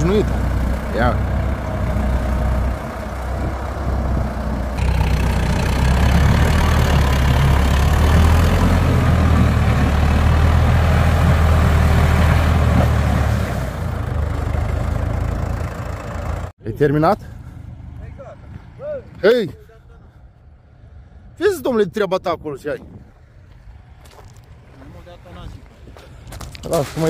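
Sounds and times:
diesel engine droning: 0:00.0 - 0:19.2.

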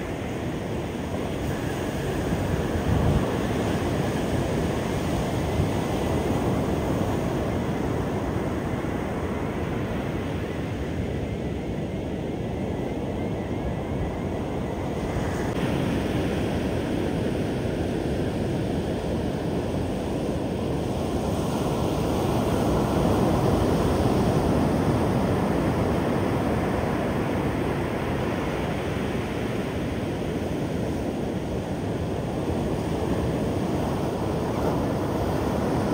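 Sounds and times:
ocean waves breaking: 0:21.7 - 0:35.9.

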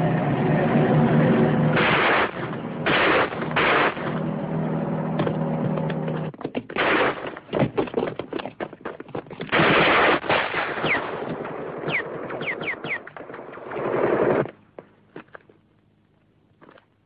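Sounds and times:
rifle and machine-gun fire: 0:01.7 - 0:04.3, 0:06.8 - 0:07.5, 0:09.5 - 0:14.5.

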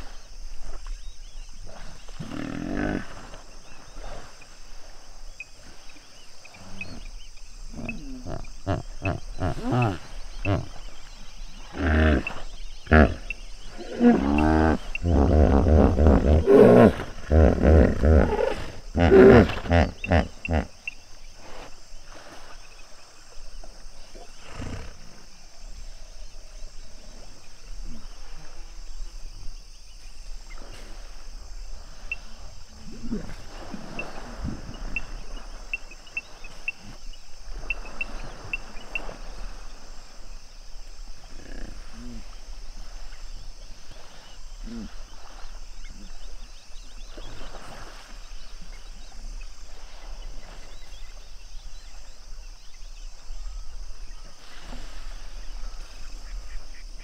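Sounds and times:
hippos grunting: 0:01.7 - 0:03.4, 0:06.6 - 0:20.8, 0:41.2 - 0:42.6.

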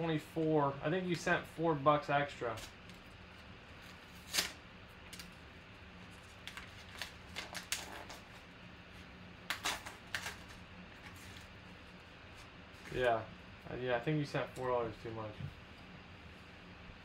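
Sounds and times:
paper envelope tearing and crumpling: 0:03.8 - 0:05.3, 0:06.1 - 0:08.5, 0:09.5 - 0:11.5.

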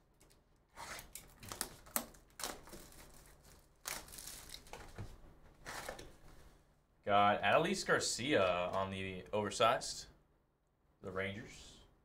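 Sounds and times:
shrink wrap tearing and crinkling: 0:00.2 - 0:05.0.

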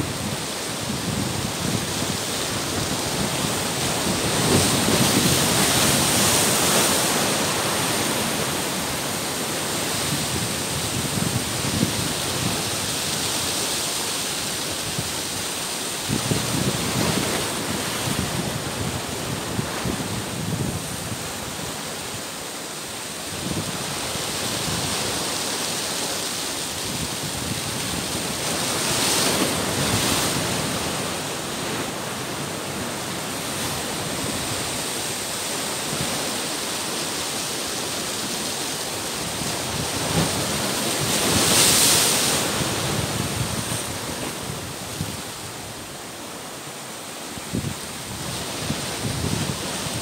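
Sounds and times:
surf breaking around rocks: 0:00.0 - 0:22.2, 0:22.9 - 0:50.0.

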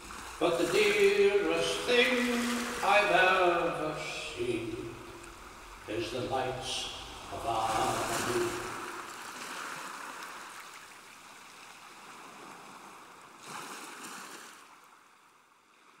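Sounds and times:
small waves washing on shore: 0:00.0 - 0:16.0.

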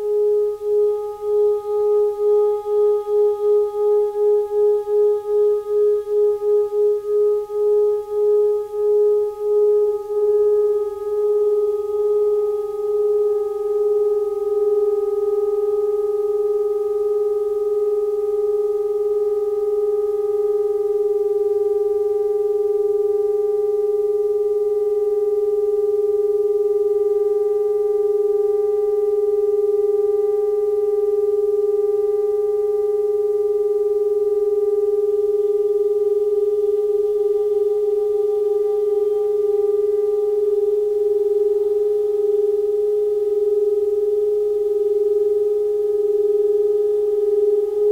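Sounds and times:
sustained saxophone drone: 0:00.0 - 0:22.9, 0:36.6 - 0:42.8.

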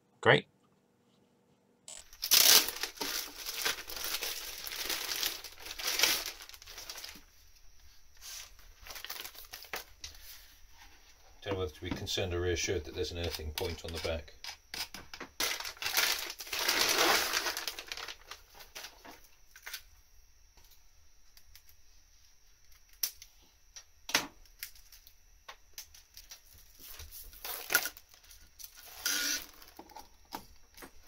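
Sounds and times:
plastic packaging crinkling: 0:01.9 - 0:07.3, 0:08.2 - 0:10.0, 0:13.2 - 0:19.8, 0:26.0 - 0:29.8.

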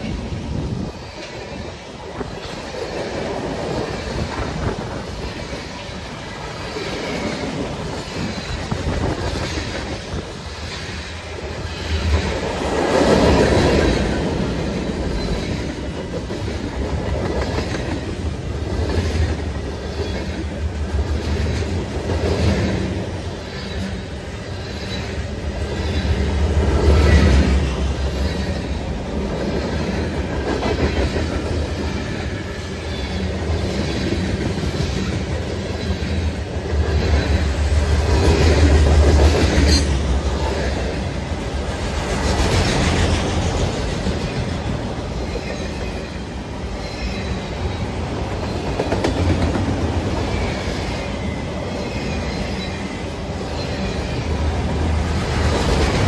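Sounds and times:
freight train cars rolling past: 0:00.0 - 0:56.0
steel wheels clacking over rail joints: 0:46.7 - 0:51.0.

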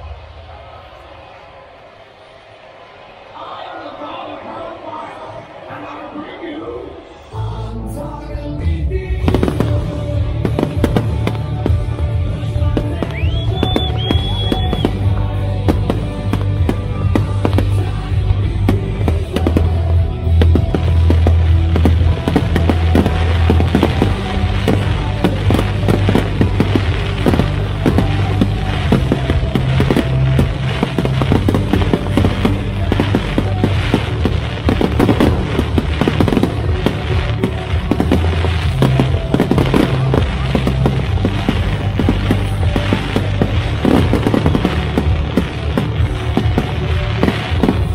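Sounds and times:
fireworks bangs and crackles: 0:00.0 - 0:02.0, 0:09.0 - 0:47.9
loud music with heavy bass: 0:07.0 - 0:47.9.

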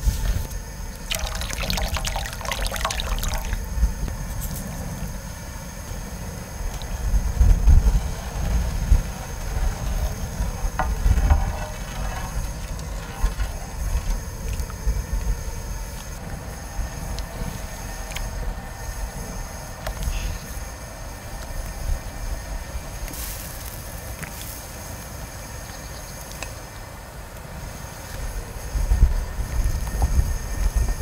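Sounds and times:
wind rumble on microphone: 0:00.0 - 0:20.7, 0:27.6 - 0:31.0
ladle stirring: 0:01.0 - 0:03.7
broth sloshing and bubbling: 0:01.0 - 0:04.1.

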